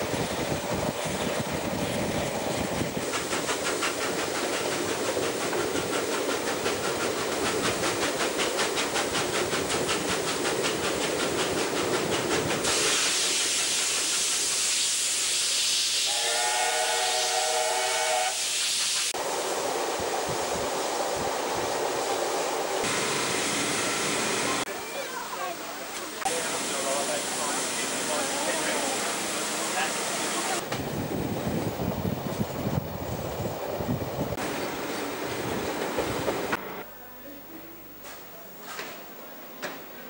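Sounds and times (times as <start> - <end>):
steam locomotive chuffing: 0.0 - 24.7
rushing hiss in tunnel: 0.0 - 36.6
steam whistle: 16.0 - 18.5.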